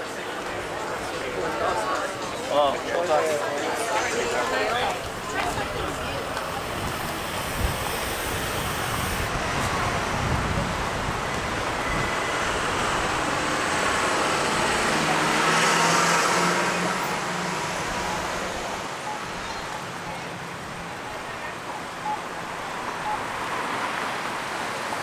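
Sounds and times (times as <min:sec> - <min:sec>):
vehicle passing: 0:05.1 - 0:20.9.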